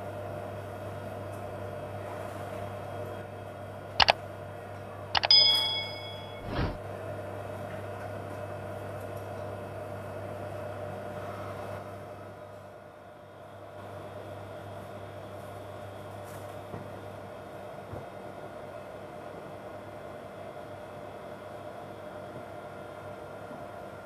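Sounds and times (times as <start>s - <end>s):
sharp clicks: 5.2s - 5.8s
metallic ding: 5.2s - 6.5s
kitchen equipment hum: 5.2s - 6.8s.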